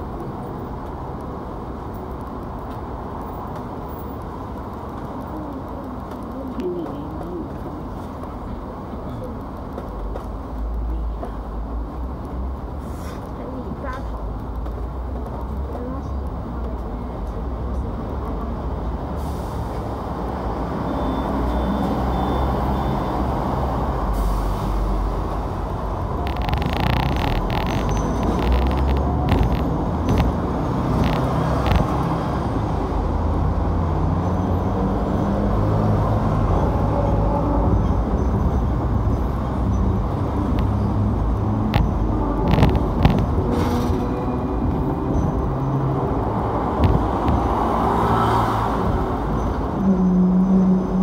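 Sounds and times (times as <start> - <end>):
tram rumbling on track: 0.0 - 51.0
sharp clicks and knocks: 26.2 - 32.2, 41.7 - 43.5, 46.8 - 47.5.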